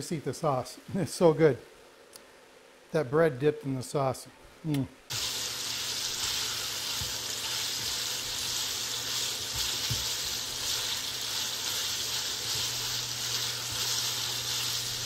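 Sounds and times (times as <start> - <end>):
sausage sizzling in a skillet: 5.1 - 15.0
spatula scraping a pan: 6.1 - 15.0.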